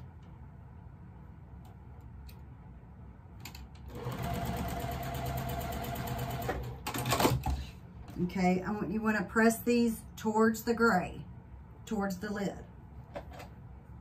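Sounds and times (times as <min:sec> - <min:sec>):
electric sewing machine stitching: 0:03.9 - 0:07.3.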